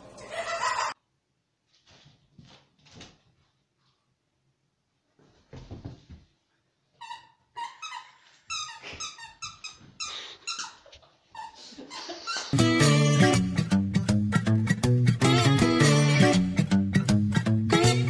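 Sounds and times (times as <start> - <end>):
soft thuds and rustles: 5.2 - 6.3.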